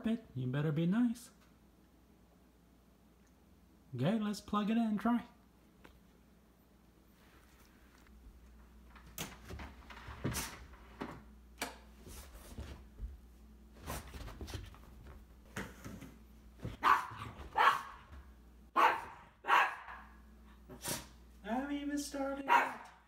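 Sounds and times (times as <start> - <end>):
dog barking: 16.8 - 18.0, 18.8 - 20.2, 22.5 - 23.0.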